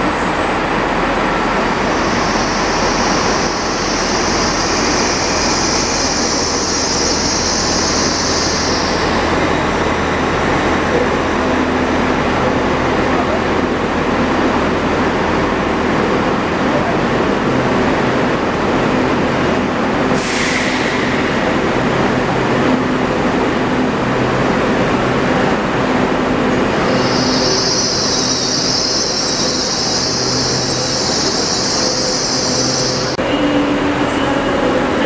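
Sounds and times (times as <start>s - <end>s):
train humming: 0.0s - 35.0s
high-pitched wheel squeal: 26.8s - 33.2s.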